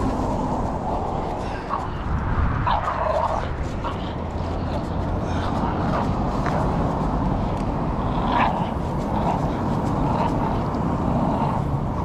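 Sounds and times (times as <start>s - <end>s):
low rumble: 0.0s - 8.2s
dog growling: 0.2s - 6.9s, 7.8s - 12.0s.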